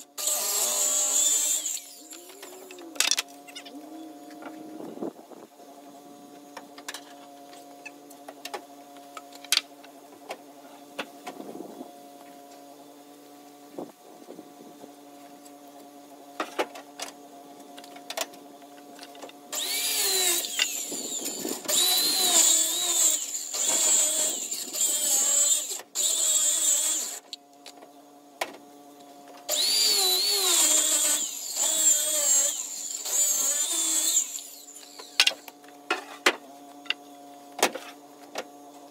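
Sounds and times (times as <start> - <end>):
circular saw cutting wood: 0.0 - 3.0, 19.5 - 27.4, 29.5 - 35.6.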